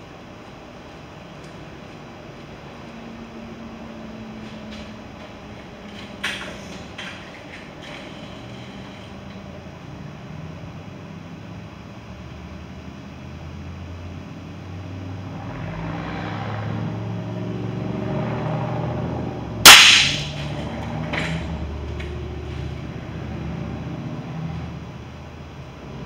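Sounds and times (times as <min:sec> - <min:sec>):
air rifle shot crack: 0:19.7 - 0:20.6.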